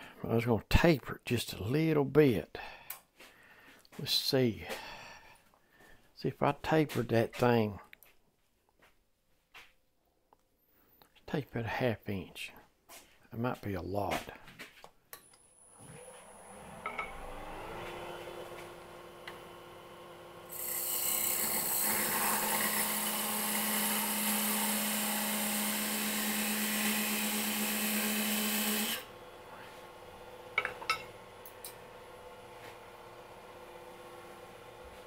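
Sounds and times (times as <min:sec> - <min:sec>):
wood lathe motor whine: 0:15.5 - 0:30.5.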